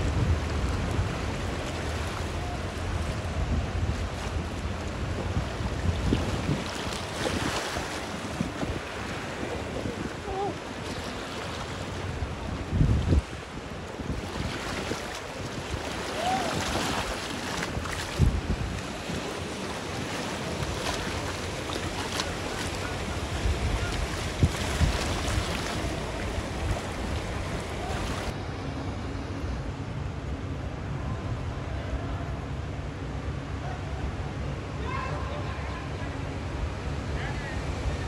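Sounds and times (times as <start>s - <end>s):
floodwater sloshing and splashing: 0.0s - 28.4s
wind buffeting microphone: 0.0s - 28.4s.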